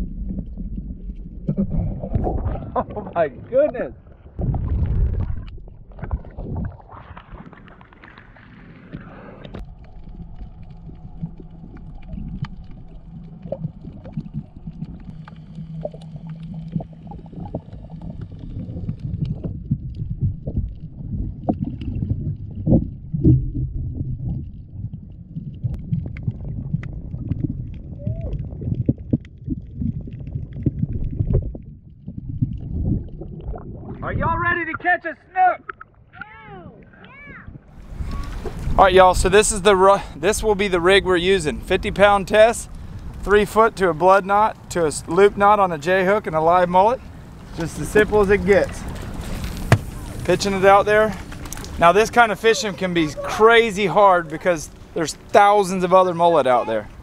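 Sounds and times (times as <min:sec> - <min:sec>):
muffled underwater rumble: 0:00.0 - 0:34.4, 0:36.0 - 0:57.0
water splashing: 0:00.0 - 0:34.8, 0:35.4 - 0:57.0
underwater clicks and knocks: 0:48.5 - 0:50.0.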